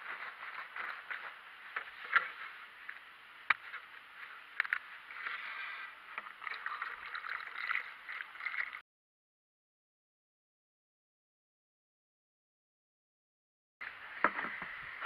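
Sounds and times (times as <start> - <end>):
liquid pouring and gurgling: 5.1 - 8.8.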